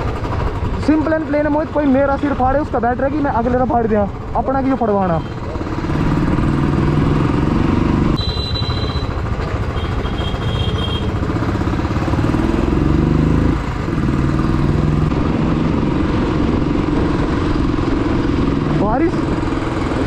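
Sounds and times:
wind and road noise: 0.0 - 20.0.

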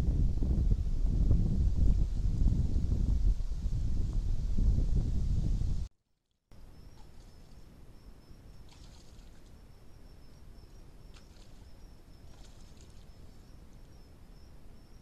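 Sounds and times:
high-pitched insect trill: 6.6 - 15.0.

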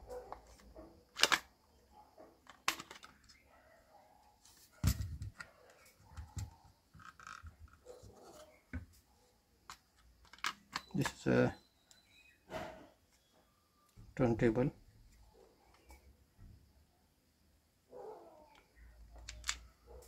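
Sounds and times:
plastic housing clicks and knocks: 2.4 - 3.4, 4.8 - 7.8, 9.7 - 11.2, 18.5 - 19.7
plastic scraping and rubbing: 4.6 - 8.8.

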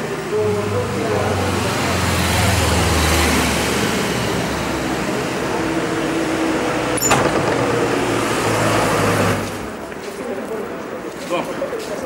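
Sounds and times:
street traffic engine hum: 0.0 - 12.0.

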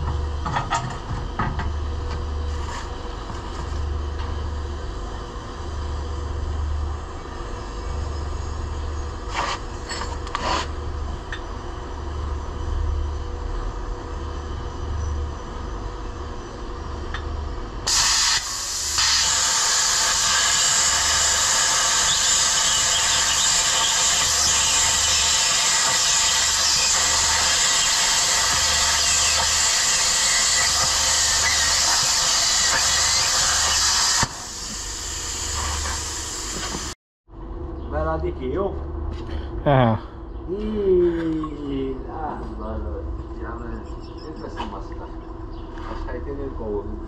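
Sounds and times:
plasma cutter hissing: 17.9 - 37.0.

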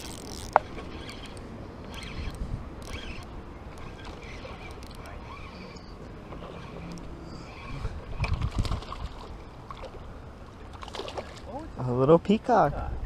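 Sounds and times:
wind rumble on microphone: 7.1 - 9.2
fish splashing in water: 10.7 - 11.6.

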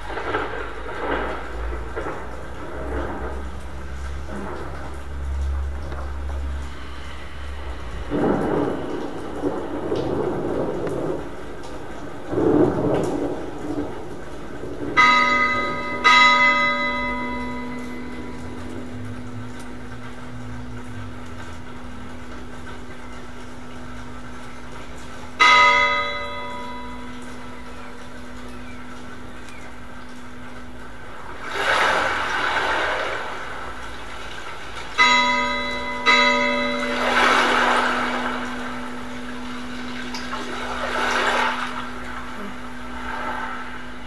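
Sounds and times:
swells of noise: 0.0 - 28.9, 29.9 - 44.0
steady low drone: 0.0 - 44.0
bell-like strikes ringing: 6.1 - 10.6, 15.0 - 24.2, 25.4 - 28.0, 35.0 - 42.7.

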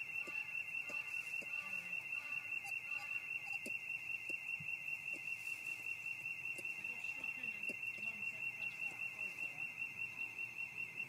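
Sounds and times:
lemur clicking calls: 0.0 - 11.0.

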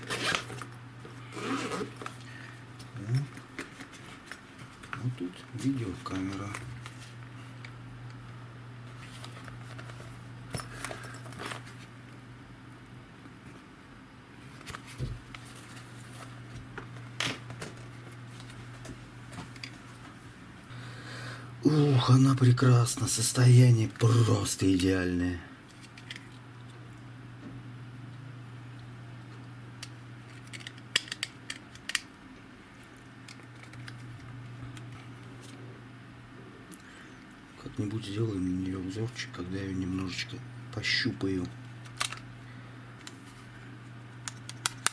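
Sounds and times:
steady low hum: 0.0 - 44.9
plastic clicks of camcorder handling: 41.4 - 42.2.

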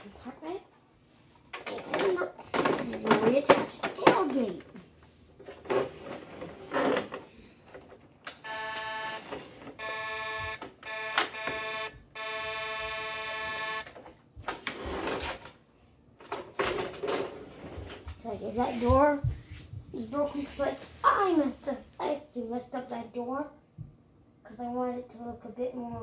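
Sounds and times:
toy truck electronic horn: 8.4 - 13.9.

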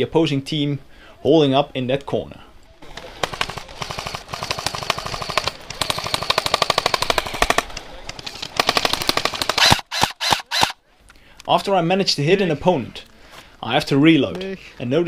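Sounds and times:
airsoft rifles firing: 2.8 - 10.8.

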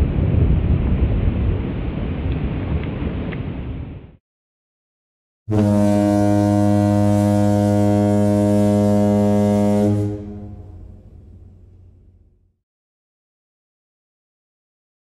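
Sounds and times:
low horn-like tone: 5.5 - 12.4.

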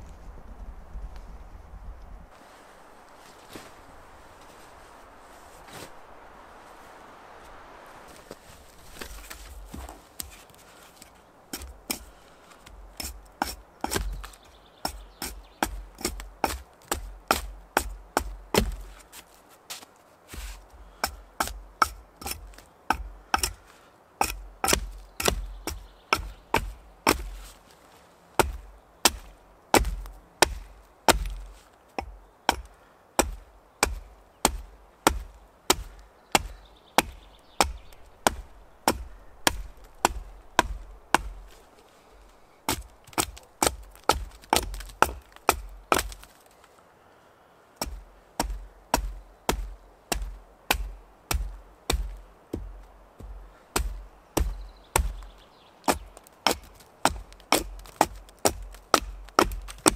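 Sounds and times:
hatchet chopping wood: 13.0 - 18.9, 20.9 - 23.6, 24.2 - 27.4, 28.4 - 41.6, 42.7 - 46.3, 47.8 - 59.9.

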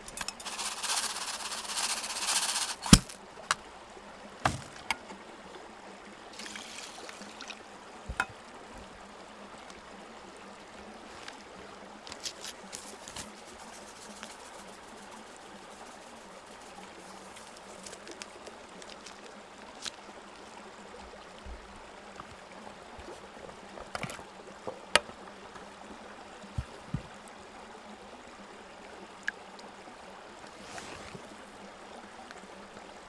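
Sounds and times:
faint steady hiss: 0.0 - 33.0
rush of rice being washed: 0.4 - 3.2, 6.3 - 7.6, 12.2 - 18.2, 30.5 - 31.3.

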